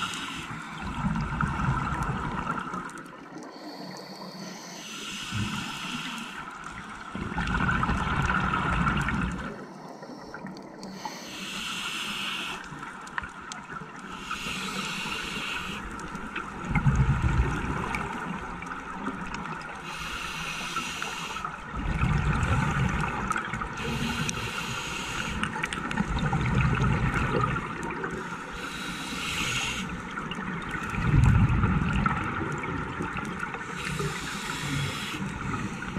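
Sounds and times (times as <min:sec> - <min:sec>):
rumbling exhaled bubbles: 0:00.8 - 0:03.1, 0:07.1 - 0:09.6, 0:16.6 - 0:18.5, 0:21.7 - 0:23.8, 0:25.5 - 0:28.2, 0:30.2 - 0:33.5
regulator hissing inhales: 0:03.5 - 0:06.5, 0:10.0 - 0:12.7, 0:14.1 - 0:15.9, 0:19.9 - 0:21.5, 0:23.8 - 0:25.5, 0:28.2 - 0:30.0, 0:33.7 - 0:35.9.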